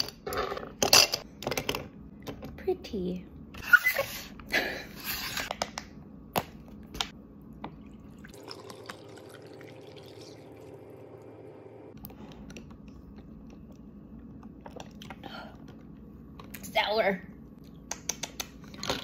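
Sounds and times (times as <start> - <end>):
juice pouring over ice: 7.9 - 10.8.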